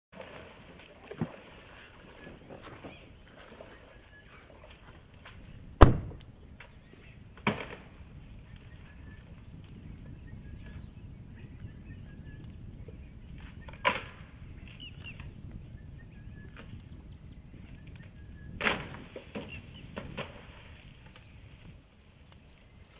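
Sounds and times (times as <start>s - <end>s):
steady low background: 5.6s - 7.4s
wood cracking: 18.6s - 20.4s.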